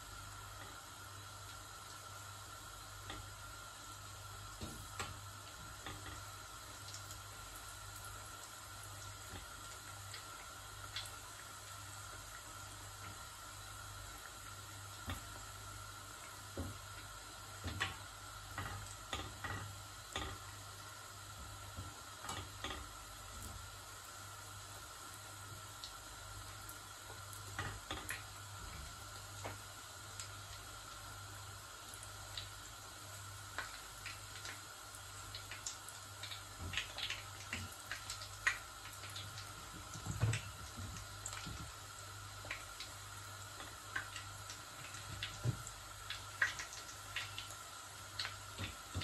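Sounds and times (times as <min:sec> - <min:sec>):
deep-frying sizzle and bubbling: 0:00.0 - 0:49.0
tongs tapping against pan: 0:18.6 - 0:20.5, 0:22.3 - 0:22.9.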